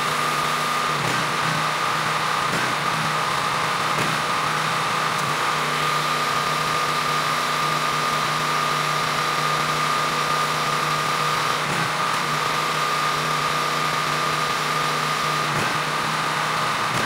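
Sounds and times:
pressure washer engine running: 0.0s - 17.0s.

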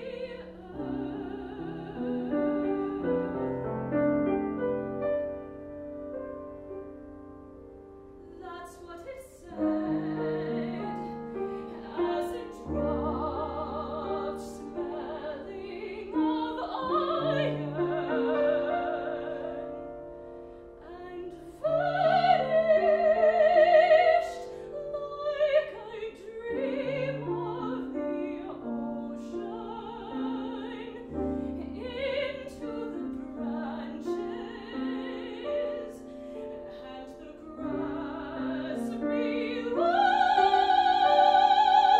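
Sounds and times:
grand piano: 0.0s - 41.9s
woman singing with vibrato: 8.3s - 19.7s, 20.8s - 41.9s.

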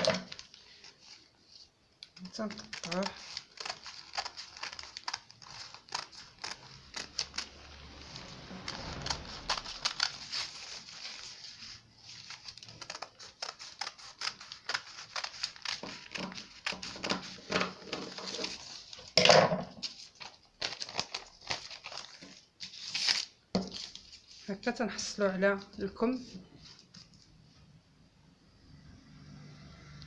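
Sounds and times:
paper rustling: 0.0s - 27.4s
scissors snipping paper: 2.1s - 8.0s, 12.2s - 18.8s.

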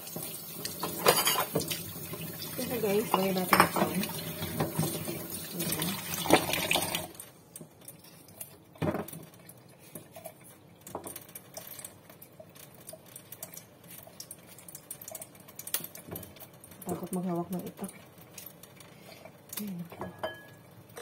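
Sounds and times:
tap water splashing into sink: 0.0s - 7.7s.

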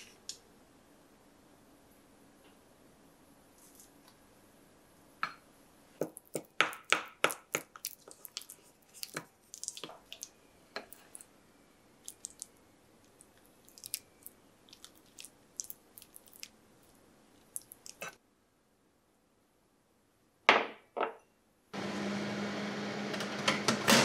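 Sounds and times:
wet squishes of paste: 6.1s - 11.3s, 12.0s - 18.2s.

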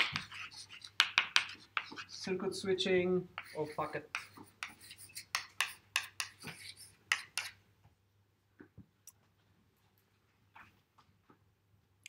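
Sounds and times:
chalk writing on blackboard: 0.0s - 2.4s, 3.3s - 7.6s.

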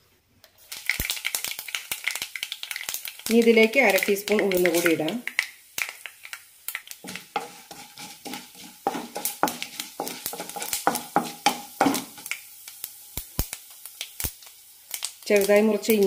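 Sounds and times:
mustard seeds popping and sizzling: 0.4s - 16.0s
spatula scraping a pan: 7.0s - 12.3s.

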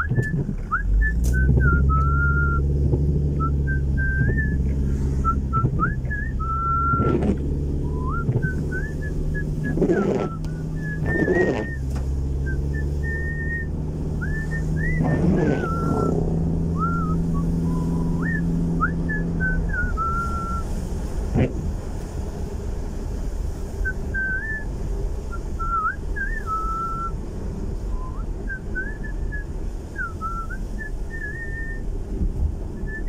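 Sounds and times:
person whistling a tune: 0.0s - 2.7s, 3.4s - 7.1s, 7.9s - 11.9s, 12.5s - 16.2s, 16.8s - 20.7s, 23.8s - 27.2s, 27.9s - 31.8s, 32.8s - 33.0s
car engine hum: 0.0s - 33.0s
road noise inside car: 0.0s - 33.0s.

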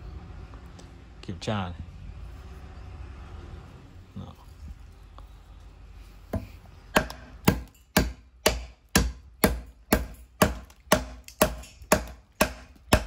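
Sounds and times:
knife chopping into wood: 6.3s - 13.0s.

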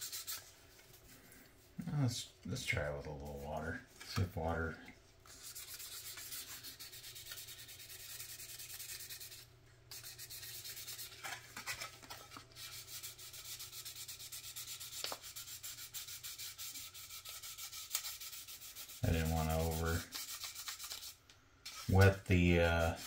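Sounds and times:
sanding pad rubbing plastic: 5.3s - 11.2s, 12.6s - 23.0s.

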